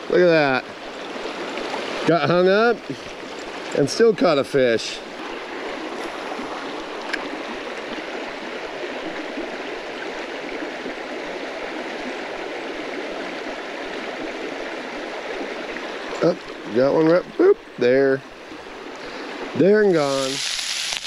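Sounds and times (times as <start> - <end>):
creek water rushing: 0.0 - 21.0.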